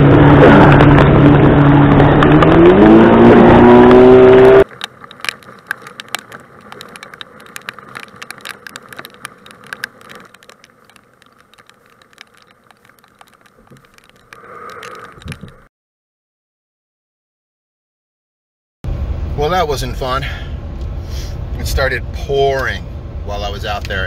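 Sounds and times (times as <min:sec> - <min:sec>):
outboard motor revving: 0:00.0 - 0:04.7
raindrops tapping: 0:04.6 - 0:15.7.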